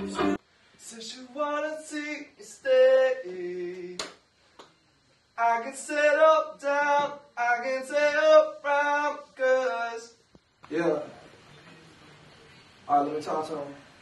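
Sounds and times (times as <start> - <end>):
man singing alone: 0.0 - 4.1, 5.4 - 10.2.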